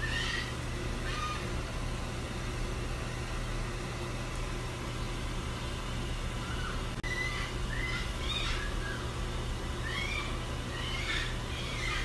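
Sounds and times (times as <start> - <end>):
vehicle interior hum and hiss: 0.0 - 12.0.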